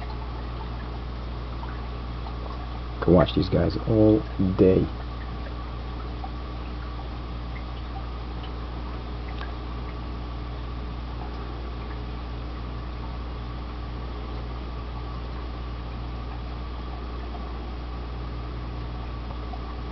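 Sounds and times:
aquarium pump humming: 0.0s - 19.9s
bubbling trickling water: 0.0s - 19.9s
faint ticks: 5.0s - 10.1s.

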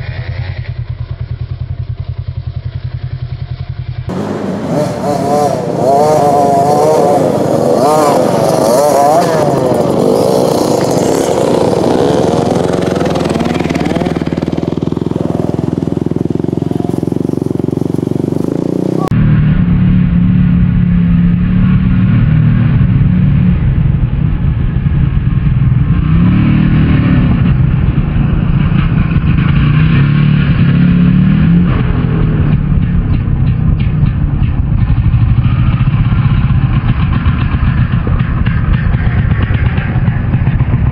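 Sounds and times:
dull steady engine drone: 0.0s - 40.9s
dirt bike engines revving: 4.1s - 40.9s.

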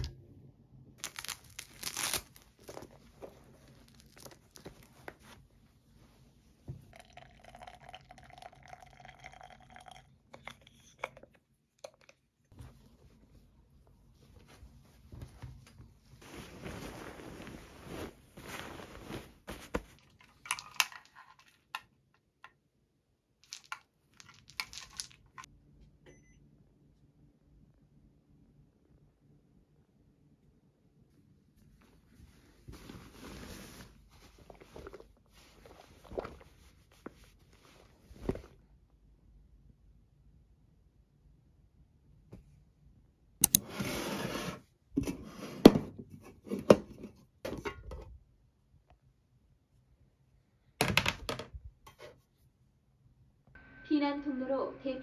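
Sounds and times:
string lights clicking and crinkling: 1.0s - 2.9s
fabric rustling: 12.6s - 20.2s, 31.6s - 38.6s
noisy rustle: 16.2s - 19.8s.

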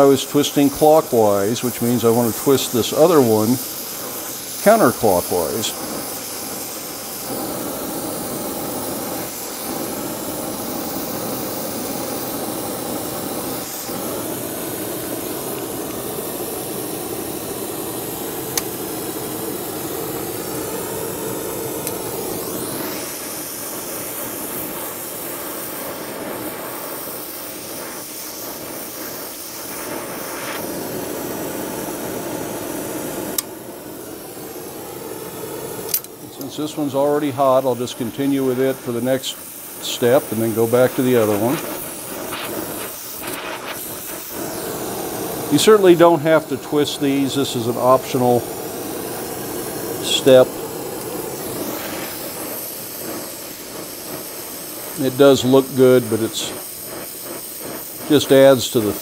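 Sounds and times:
torch flame hissing: 0.0s - 59.0s
sharp click: 35.9s - 36.2s.

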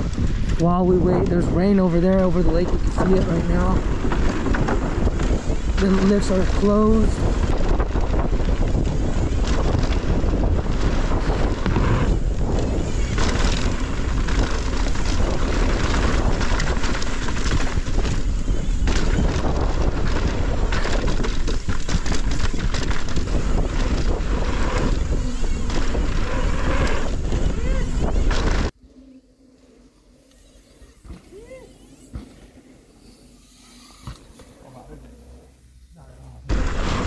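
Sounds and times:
bike rattling over rough ground: 0.0s - 28.8s
wind buffeting microphone: 0.0s - 28.8s.

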